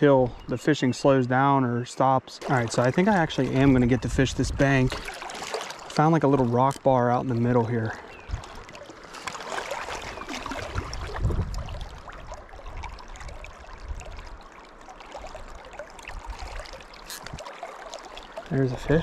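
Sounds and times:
river flowing and splashing: 0:00.0 - 0:19.0.

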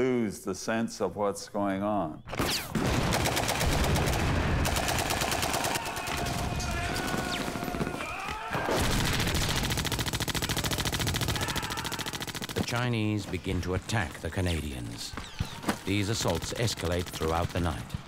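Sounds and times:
machine gun firing bursts: 0:02.8 - 0:07.7, 0:08.7 - 0:13.0, 0:15.9 - 0:18.0.

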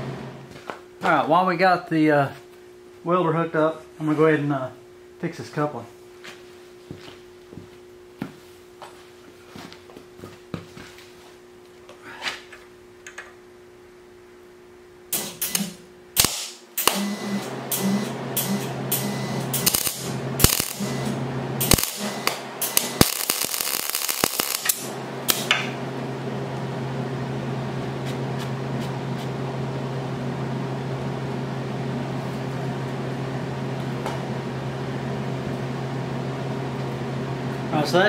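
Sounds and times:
low electrical hum: 0:00.0 - 0:38.0
welding arc crackling: 0:15.2 - 0:25.8.

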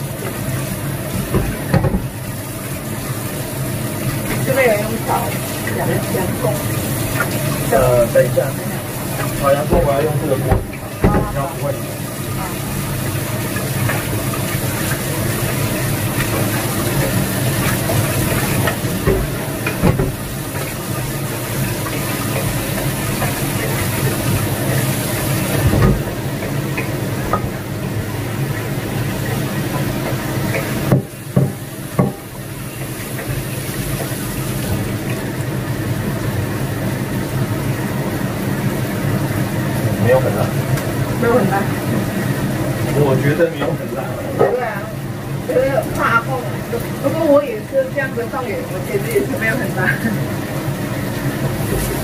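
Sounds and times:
pans clanking: 0:00.0 - 0:02.3, 0:04.1 - 0:12.7, 0:13.4 - 0:35.3
tap water running: 0:00.0 - 0:52.0.

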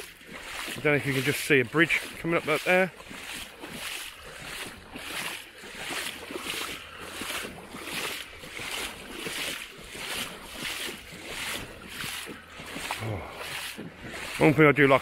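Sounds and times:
footsteps wading through water: 0:00.0 - 0:15.0.

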